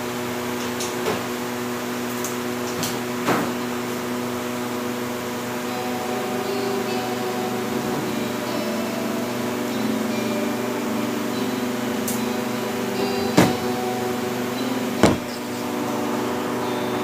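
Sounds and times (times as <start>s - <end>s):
appliance or fan humming: 0.0s - 17.0s
sharp knocks: 15.0s - 15.4s.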